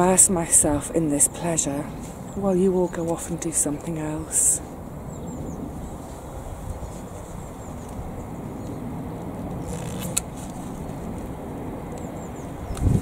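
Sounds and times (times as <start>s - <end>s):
low outdoor rumble: 0.0s - 13.0s
foliage rustling: 5.6s - 8.8s, 9.4s - 11.4s
secateurs snipping stem: 9.5s - 10.6s.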